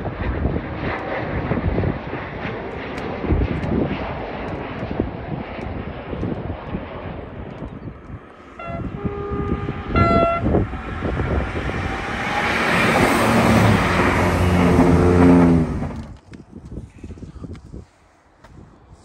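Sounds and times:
train passing rushing noise: 8.2s - 16.2s
train horn toots: 8.6s - 10.8s.

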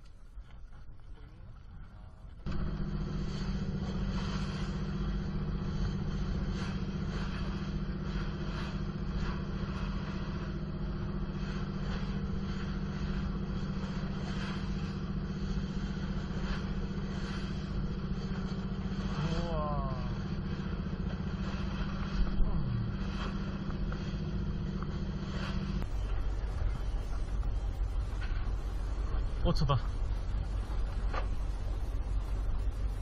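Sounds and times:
boat engine running: 0.0s - 33.0s
water rushing against hull: 2.5s - 33.0s.

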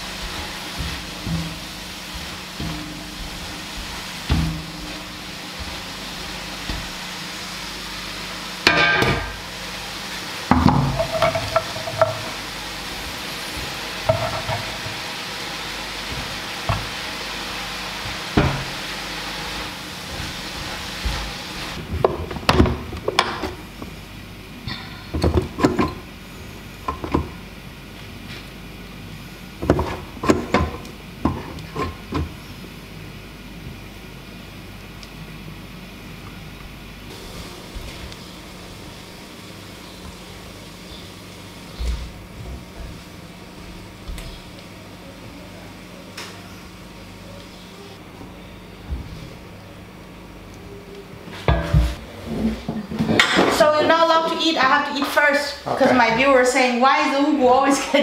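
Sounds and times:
food sizzling in a frying pan: 0.0s - 21.9s.

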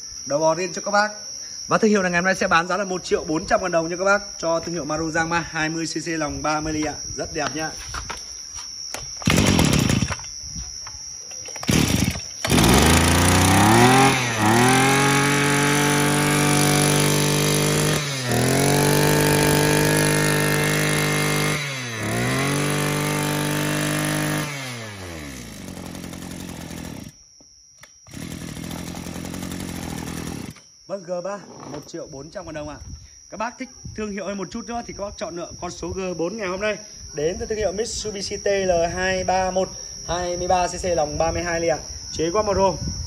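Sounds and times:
pull cord starting: 8.9s - 10.3s, 11.5s - 27.1s, 27.8s - 30.7s
brush cutter engine revving: 9.2s - 10.2s, 11.6s - 27.2s, 28.1s - 30.6s.

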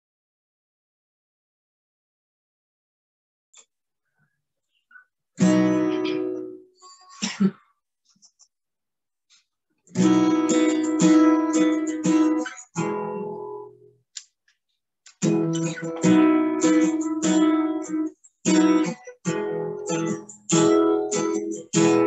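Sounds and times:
acoustic guitar strumming: 5.4s - 6.7s, 9.9s - 13.9s, 15.2s - 22.0s.

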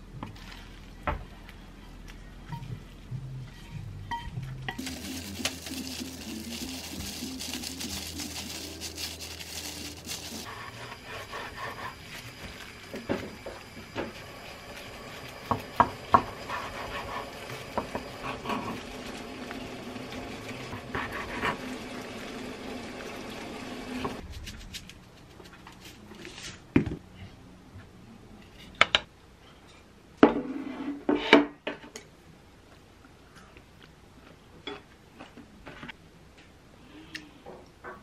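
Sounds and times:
kitchen hum: 0.0s - 26.9s.

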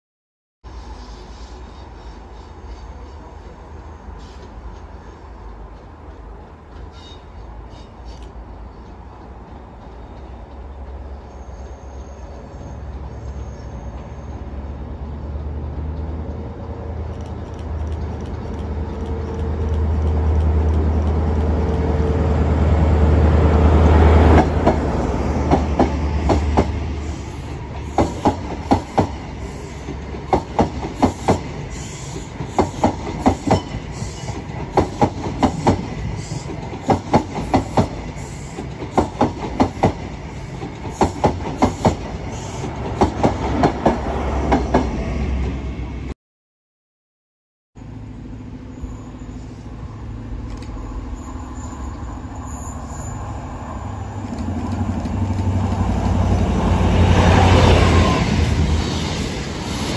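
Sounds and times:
diesel train engine drone: 0.6s - 46.1s, 47.8s - 59.9s
train wheels clickety-clack: 17.1s - 22.1s, 24.2s - 45.0s.

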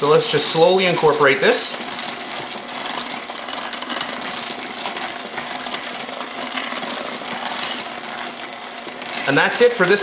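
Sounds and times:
electric hand mixer running: 0.0s - 10.0s.

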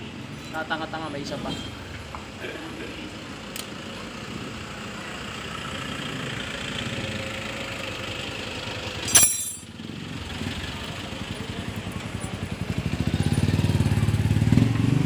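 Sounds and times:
small engine idling: 3.4s - 14.8s
loud metallic clatter: 9.0s - 9.8s.

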